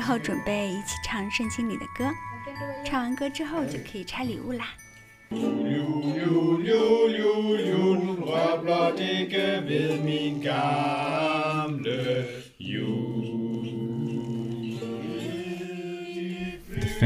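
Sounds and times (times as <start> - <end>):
people singing unaccompanied: 5.3 - 17.0.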